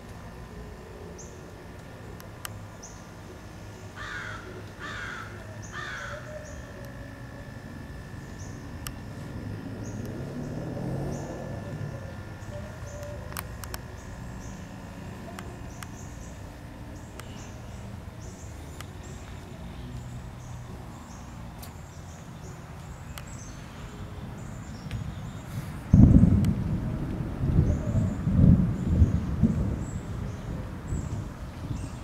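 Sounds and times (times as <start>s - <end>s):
low storm rumble: 7.6s - 15.4s, 24.2s - 32.0s
sharp clicks: 13.0s - 13.9s.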